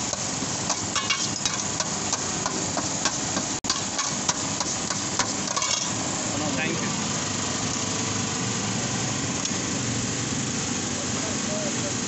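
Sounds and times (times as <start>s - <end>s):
metal spoon scraping metal tray: 5.3s - 6.0s.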